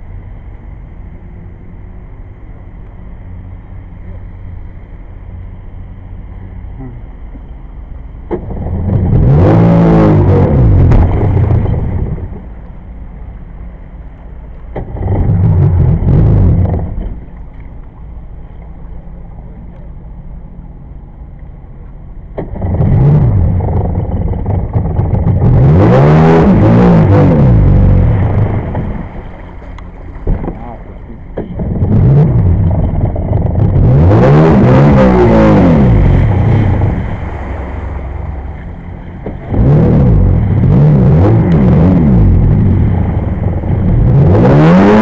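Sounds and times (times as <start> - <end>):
two-stroke engine revving: 22.4 - 28.4, 31.4 - 37.0, 39.2 - 43.1.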